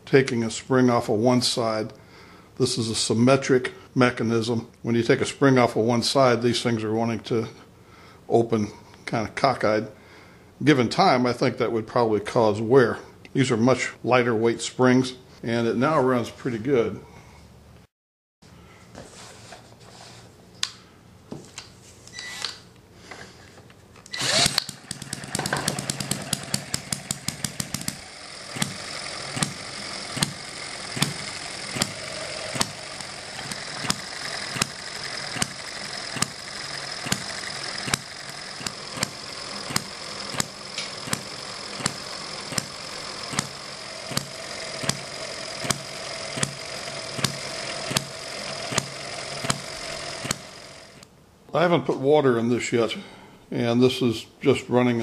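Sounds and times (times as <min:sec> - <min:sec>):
model engine firing pops: 0:24.4 - 0:50.5.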